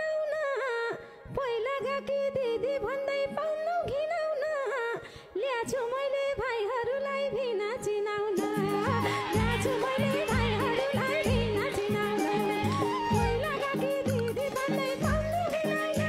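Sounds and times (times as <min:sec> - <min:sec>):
woman singing folk song: 0:00.0 - 0:16.0
rhythmic accompaniment beat: 0:08.4 - 0:16.0.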